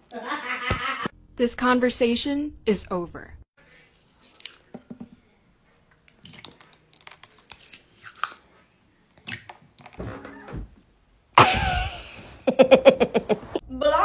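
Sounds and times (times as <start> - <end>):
metal spoon scooping plastic cup: 6.0 - 8.5.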